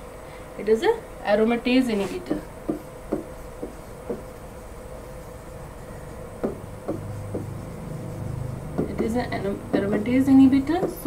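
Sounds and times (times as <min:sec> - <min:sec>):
steady low hum: 0:00.0 - 0:11.0
stylus tapping on screen: 0:02.6 - 0:04.4, 0:06.4 - 0:07.8, 0:08.6 - 0:11.0.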